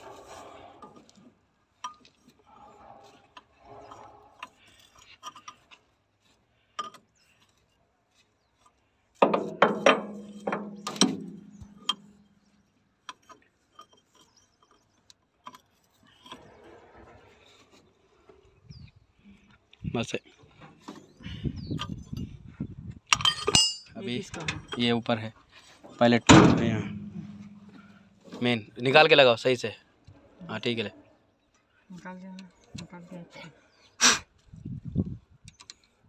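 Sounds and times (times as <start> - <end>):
loud metal clanks: 9.2 - 12.2, 26.2 - 28.2
hand tools clinking on metal: 23.1 - 25.0.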